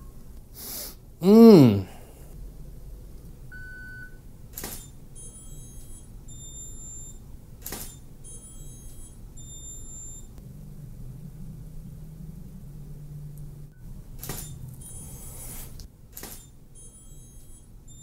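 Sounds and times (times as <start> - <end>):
camera shutter firing: 4.5 - 4.9, 7.6 - 8.0, 14.2 - 14.6, 16.1 - 16.5.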